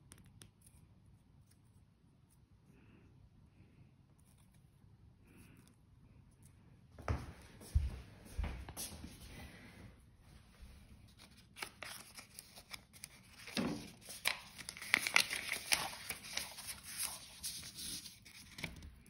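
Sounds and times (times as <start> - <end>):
paper rustling and crinkling: 11.0 - 19.0.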